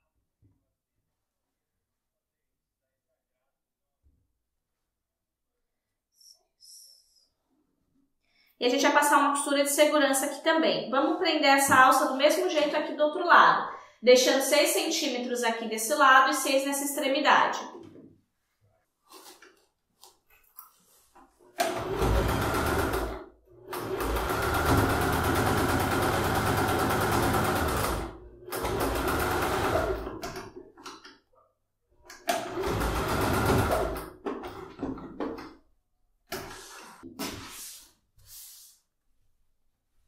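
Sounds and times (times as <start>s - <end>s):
soft handling sounds: 18.0s - 21.4s
sewing machine stitching: 21.6s - 30.5s, 32.2s - 35.2s.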